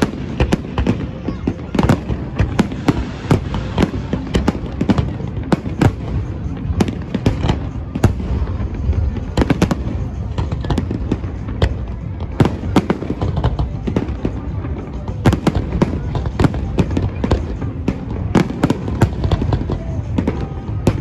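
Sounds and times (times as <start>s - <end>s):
fireworks bangs and crackles: 0.0s - 21.0s.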